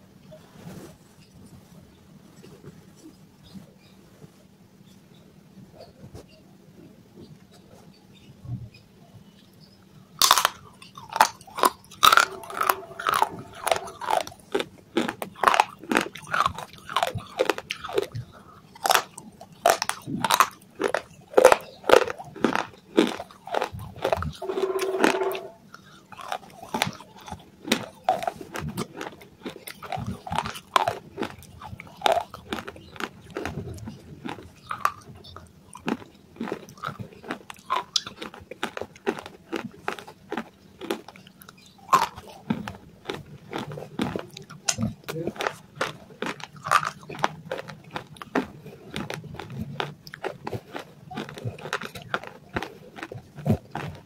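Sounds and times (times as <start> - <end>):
crunching and chewing: 9.0 - 54.0
brief hum: 12.1 - 14.0, 24.4 - 25.7.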